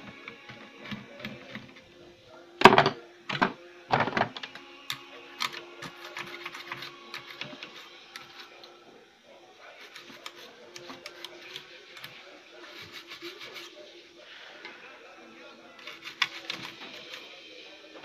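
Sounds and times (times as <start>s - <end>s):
tool scraping circuit board: 4.0s - 8.7s, 9.8s - 13.7s, 15.8s - 17.3s.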